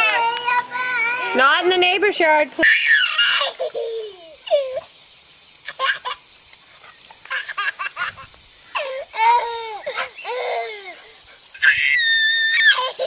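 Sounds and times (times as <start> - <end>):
small child laughing and squealing: 0.0 - 1.4, 2.6 - 4.9, 5.7 - 6.2, 7.3 - 13.0.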